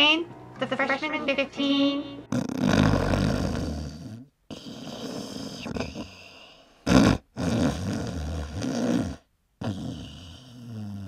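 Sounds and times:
growling roar: 2.3s - 4.3s.

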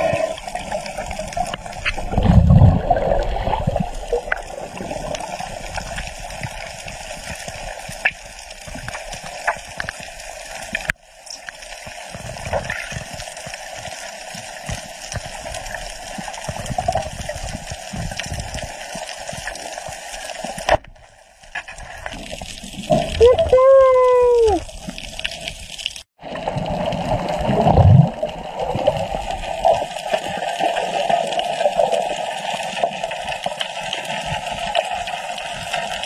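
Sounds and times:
underwater rush of water: 0.0s - 36.0s
faint clicks and crackles: 0.1s - 23.3s.

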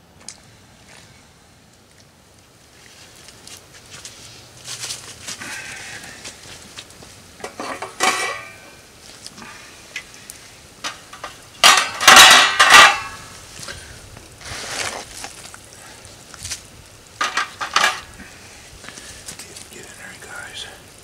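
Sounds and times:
metal pot lid clanking: 7.4s - 8.6s, 10.8s - 13.2s.

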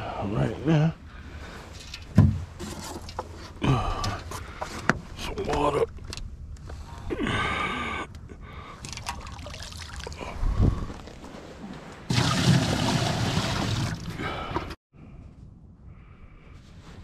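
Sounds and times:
water pouring from bucket: 8.8s - 10.2s, 12.1s - 14.2s.

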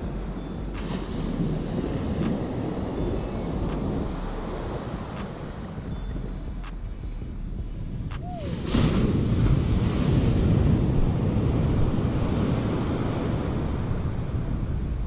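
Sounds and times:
wind buffeting microphone: 0.0s - 15.0s
surf breaking on beach: 8.3s - 15.0s.

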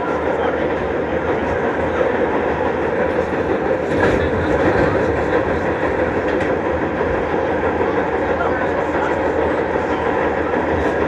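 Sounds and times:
subway train rumble and wheel clatter: 0.0s - 11.0s.

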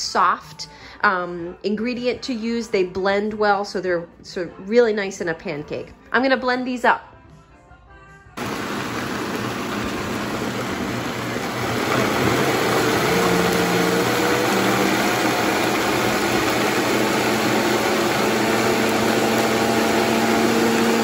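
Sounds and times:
blender running: 8.4s - 21.0s.

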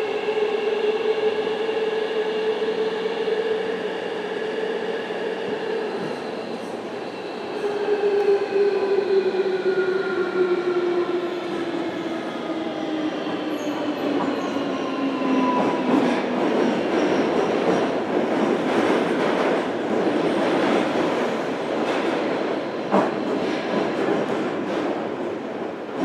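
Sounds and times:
train wheels rumbling on rails: 5.9s - 26.0s.

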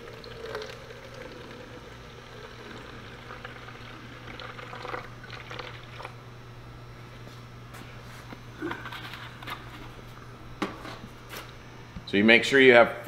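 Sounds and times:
liquid trickling into bucket: 0.0s - 6.2s
low steady hum: 0.0s - 13.0s.

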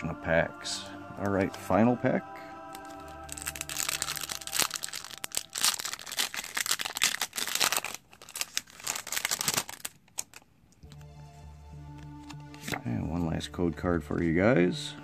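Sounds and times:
foil wrapper crinkling and tearing: 2.7s - 11.0s.

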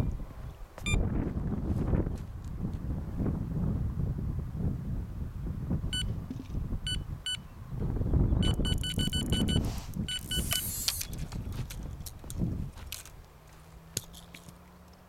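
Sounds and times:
wind noise on microphone: 0.0s - 13.3s
bite alarm beeping: 8.4s - 10.9s.

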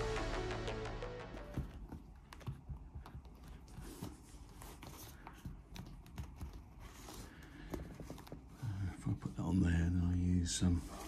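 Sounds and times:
small clicks and rustles: 1.7s - 8.6s.

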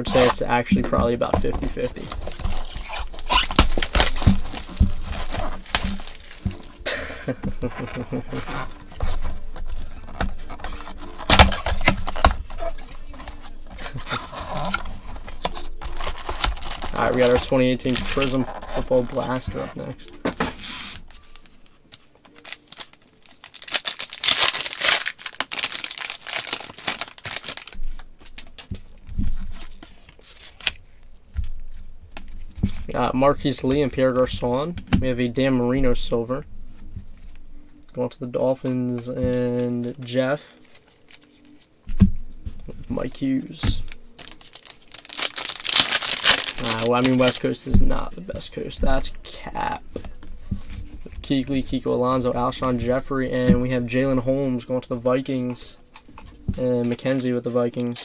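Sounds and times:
plastic shrink wrap crinkling: 0.0s - 19.5s, 20.5s - 33.6s, 42.4s - 48.2s
cards rustling and clicking: 0.0s - 34.8s, 42.3s - 53.0s.

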